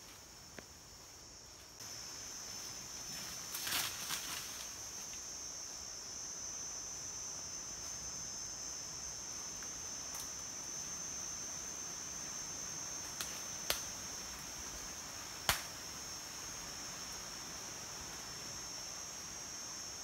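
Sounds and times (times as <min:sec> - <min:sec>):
insects droning: 0:00.0 - 0:20.0
sharp snaps: 0:13.2 - 0:13.9, 0:15.4 - 0:15.7.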